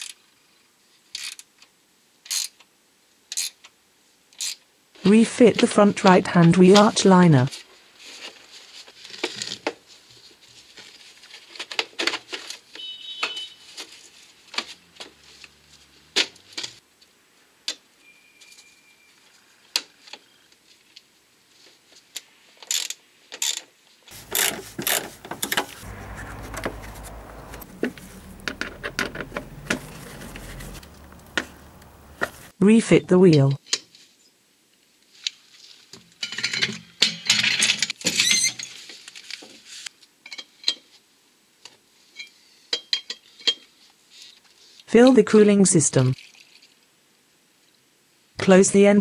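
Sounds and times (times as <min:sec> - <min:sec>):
steady low rumble: 0:24.2 - 0:32.5.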